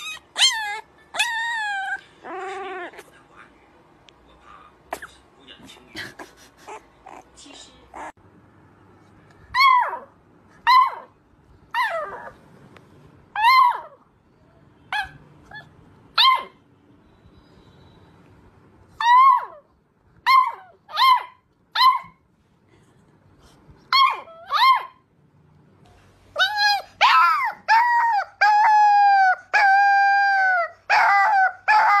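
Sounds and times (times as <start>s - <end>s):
puppy howling: 0.0s - 3.1s, 9.5s - 11.1s, 11.7s - 12.4s, 26.4s - 32.0s.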